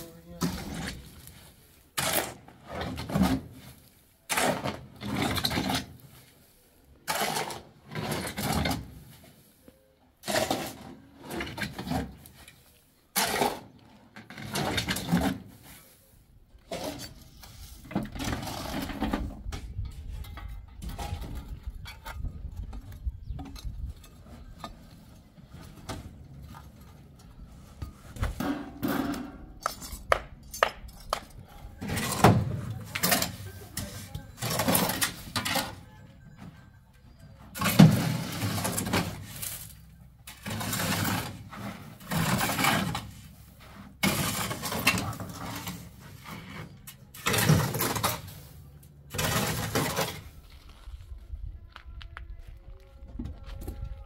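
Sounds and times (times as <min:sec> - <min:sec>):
shovel scraping sand off metal: 0:00.4 - 0:09.6, 0:37.6 - 0:50.4.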